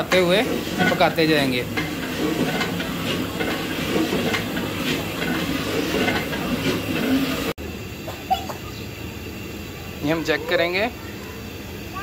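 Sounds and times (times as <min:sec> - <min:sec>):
metal ladle scraping pot: 0:00.0 - 0:07.5
gas burner roaring: 0:00.0 - 0:12.0.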